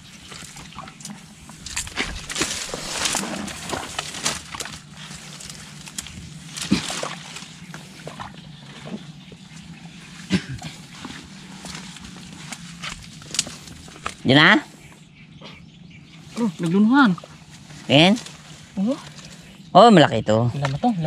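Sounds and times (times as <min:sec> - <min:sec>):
hands squelching in mud: 0:00.1 - 0:14.2.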